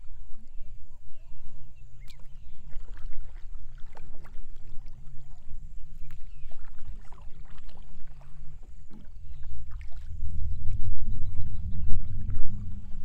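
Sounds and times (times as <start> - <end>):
water lapping and splashing: 0.0 - 13.0
low rumble: 8.4 - 13.0.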